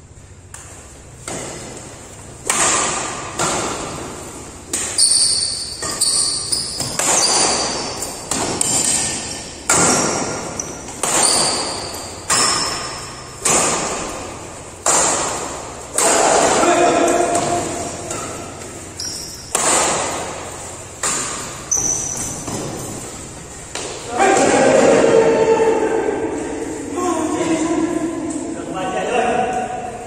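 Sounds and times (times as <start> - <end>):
rackets hitting shuttlecock: 0.4 - 25.0
shoes squeaking on court floor: 3.4 - 15.9, 16.6 - 24.2.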